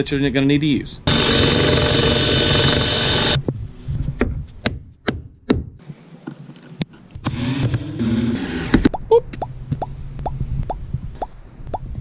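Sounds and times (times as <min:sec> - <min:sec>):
drill with hole saw cutting: 0:01.1 - 0:03.4.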